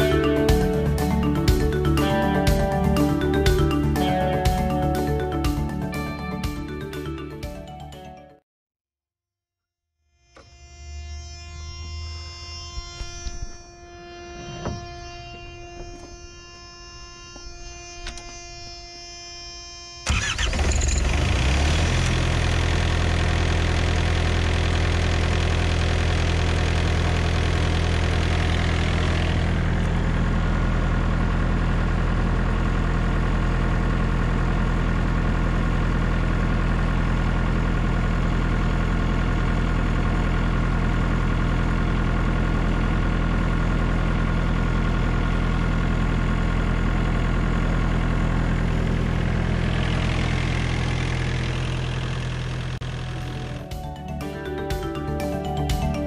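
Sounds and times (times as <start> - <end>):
diesel engine idling: 0.0 - 6.0, 20.1 - 54.8.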